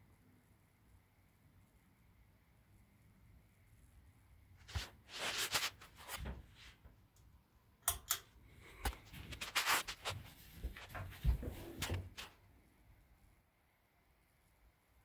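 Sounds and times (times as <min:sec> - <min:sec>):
rustling: 0:04.6 - 0:06.9, 0:08.8 - 0:12.5.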